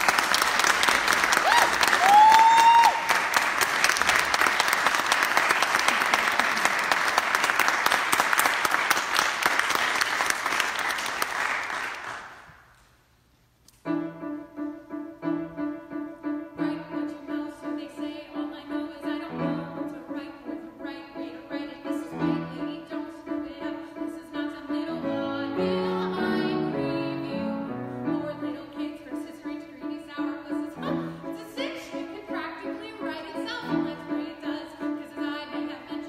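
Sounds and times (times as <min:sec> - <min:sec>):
audience applause: 0:00.0 - 0:12.4.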